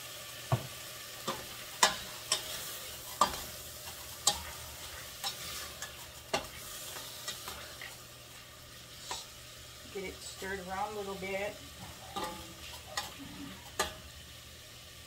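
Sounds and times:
meat sizzling in a pot: 0.0 - 15.0.

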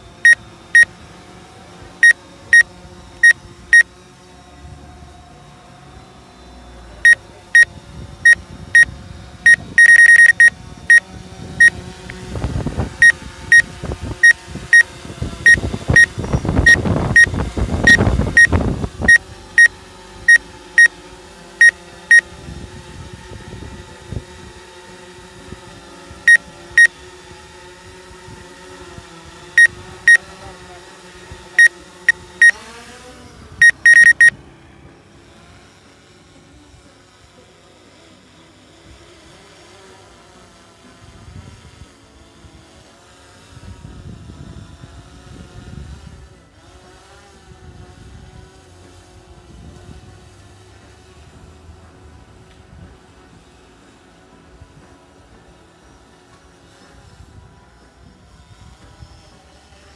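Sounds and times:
short electronic beeps: 9.5 - 11.0, 13.0 - 14.8, 15.5 - 17.3, 17.9 - 18.5, 33.6 - 34.3.

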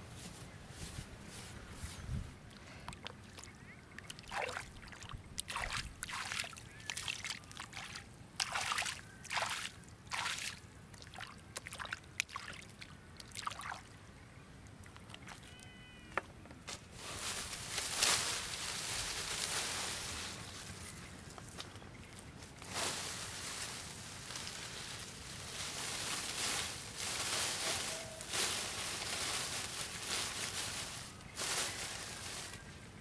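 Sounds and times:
hands splashing muddy water: 4.1 - 12.6.

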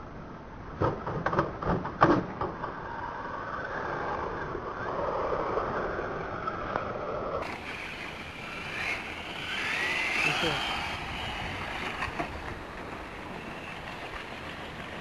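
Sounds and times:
small electric motor whirring: 4.7 - 15.0.

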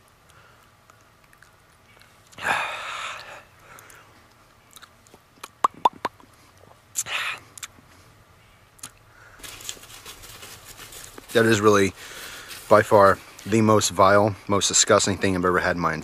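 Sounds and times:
man chewing: 0.2 - 7.8
wet mouth clicks and smacks: 0.8 - 2.4, 3.7 - 6.3, 7.6 - 7.8.

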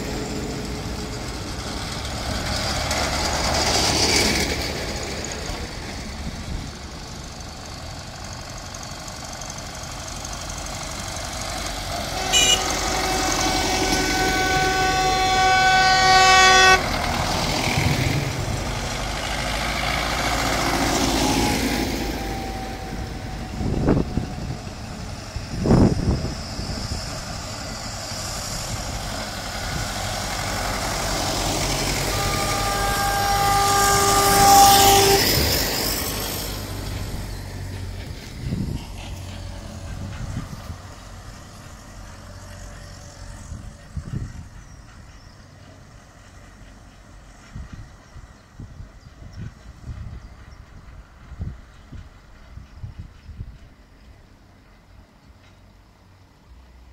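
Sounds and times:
diesel tractors driving past: 0.0 - 56.9
horn blasts: 12.0 - 17.4, 30.7 - 35.7.

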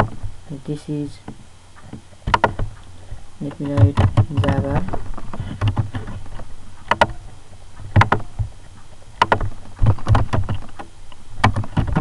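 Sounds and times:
low steady hum: 0.0 - 12.0
keyboard and mouse clicks: 1.9 - 6.2, 6.9 - 7.2, 7.8 - 8.5, 9.2 - 12.0.

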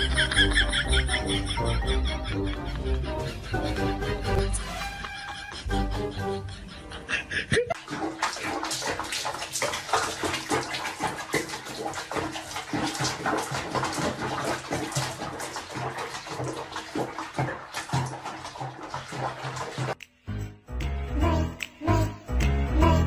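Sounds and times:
music: 0.0 - 7.4, 20.0 - 23.0
water splashing in a tub: 7.7 - 20.0.

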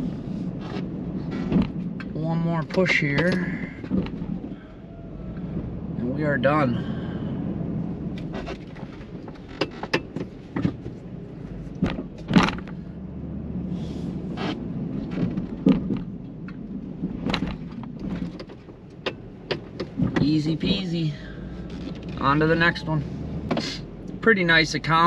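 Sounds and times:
truck engine running: 0.0 - 25.0
sharp clunks and knocks: 0.6 - 4.6, 8.1 - 12.8, 14.3 - 20.3, 23.4 - 23.8.

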